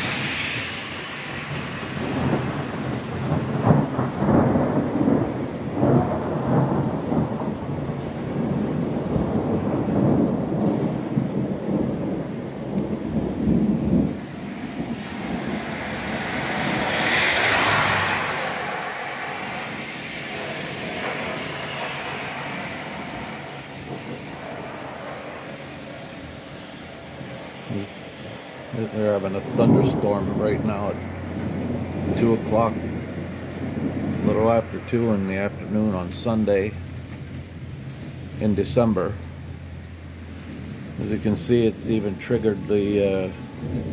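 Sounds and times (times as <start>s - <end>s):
hiss: 0.0s - 1.9s
steady rain: 0.0s - 43.9s
thunder rumbling: 0.0s - 43.9s.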